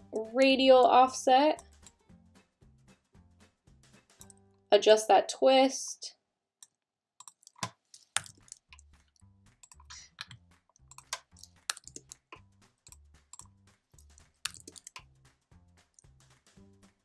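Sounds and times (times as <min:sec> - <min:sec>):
quiet background music: 0:00.0 - 0:06.1, 0:07.2 - 0:17.0
computer keyboard clicking: 0:07.2 - 0:08.7, 0:09.6 - 0:12.2, 0:14.5 - 0:15.0
mouse clicking: 0:07.2 - 0:08.8, 0:09.6 - 0:12.2, 0:12.9 - 0:13.5, 0:14.5 - 0:15.0.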